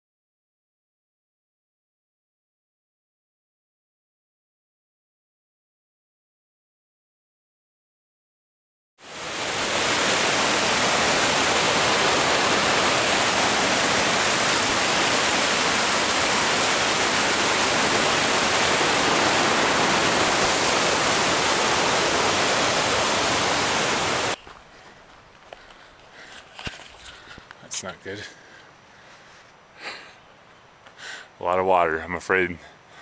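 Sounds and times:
water rushing over rocks: 9.0s - 24.4s.

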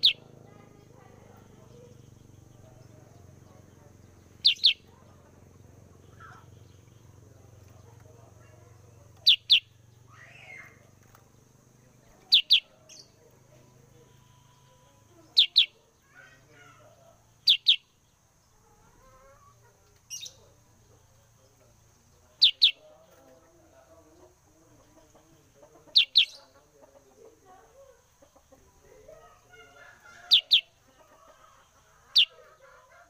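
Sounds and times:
bird double chirps: 0.0s - 0.2s, 4.4s - 4.9s, 17.4s - 18.0s.

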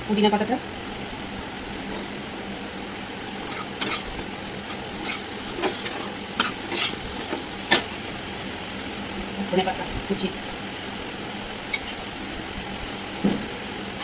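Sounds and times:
spatula scraping a pan: 3.4s - 7.9s.

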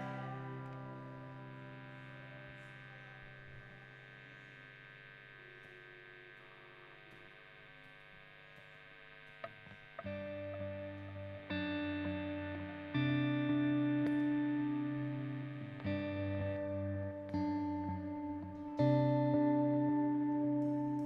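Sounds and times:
band playing held chord: 0.0s - 4.3s.

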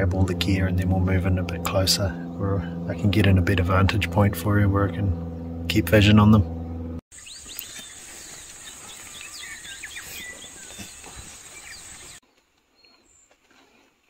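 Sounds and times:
bird chirps: 6.4s - 12.2s.

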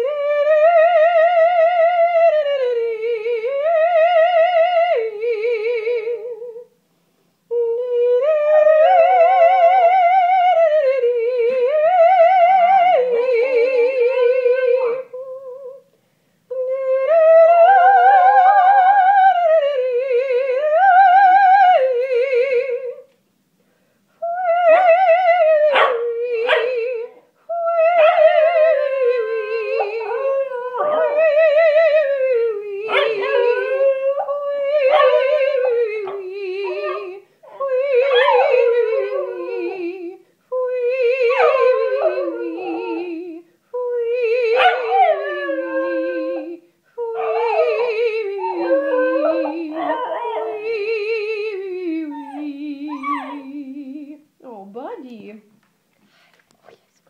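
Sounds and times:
person singing operatic warm-ups: 7.5s - 23.1s, 24.2s - 55.2s
dog howling and yipping: 24.5s - 27.1s, 27.8s - 32.2s, 32.8s - 40.0s, 41.1s - 43.3s, 44.4s - 51.1s, 52.0s - 53.6s.

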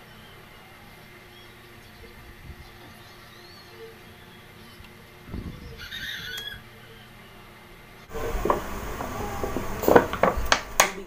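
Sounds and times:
plastic bottle crackling: 8.1s - 11.0s.

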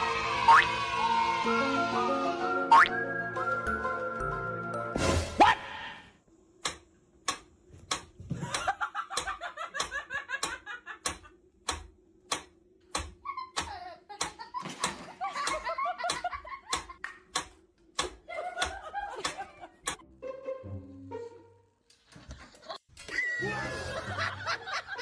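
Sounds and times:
person giggling and laughing: 8.3s - 11.4s, 13.2s - 17.0s, 18.2s - 19.9s, 22.4s - 25.0s.

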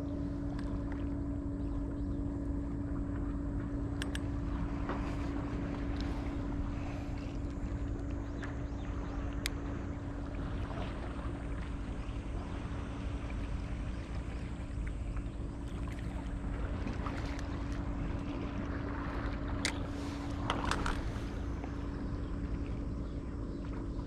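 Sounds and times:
constant low hum: 0.0s - 24.0s
sharp clicks: 4.0s - 4.3s.

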